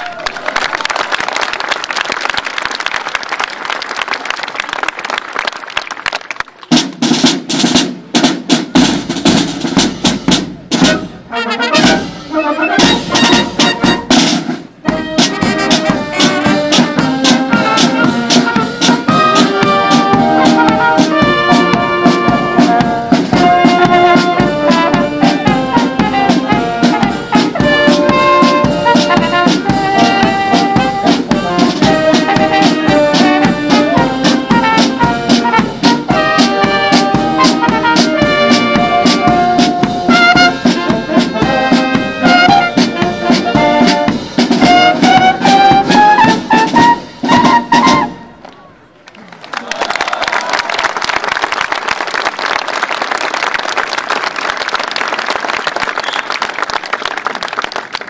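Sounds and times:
applause and crowd noise: 0.0s - 7.2s, 48.4s - 58.0s
brass band playing: 6.7s - 48.4s.

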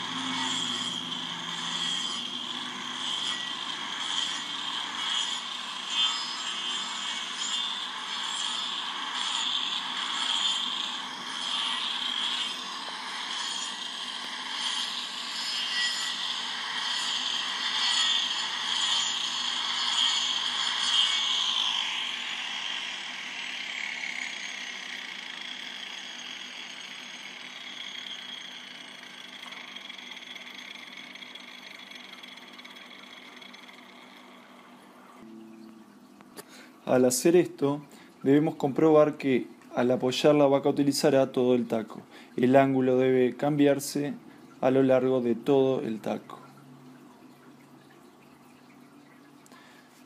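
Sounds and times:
angle grinder sanding wood: 0.0s - 34.6s.

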